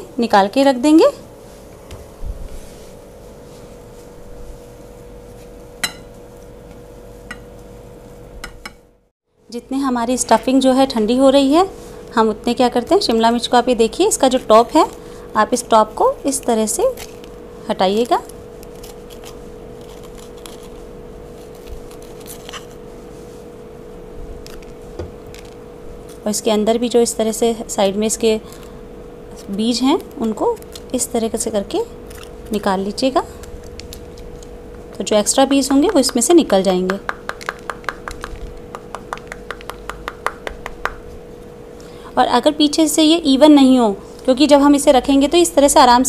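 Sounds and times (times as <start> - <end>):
steady hum: 0.0 - 46.0
knife cutting pepper: 18.6 - 20.8.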